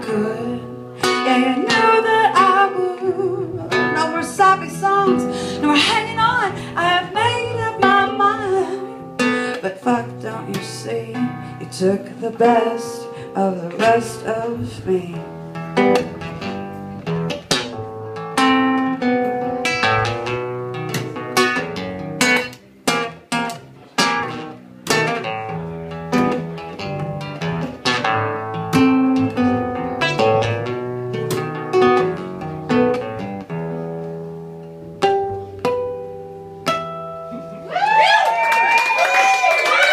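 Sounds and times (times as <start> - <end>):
acoustic guitar plucking: 0.0 - 37.7
plucked upright bass: 11.8 - 37.7
applause and cheering: 37.6 - 39.9.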